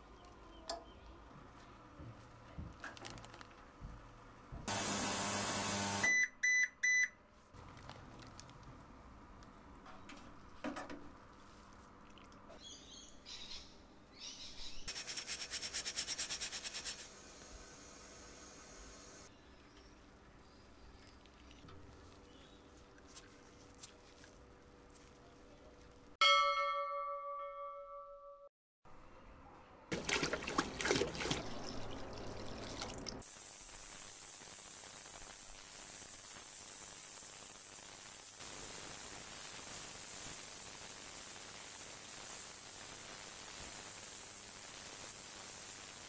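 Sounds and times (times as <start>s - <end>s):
ultrasonic cleaner hissing: 4.7s - 6.1s, 16.7s - 19.3s, 33.2s - 46.0s
bell-like chime ringing: 26.2s - 28.5s.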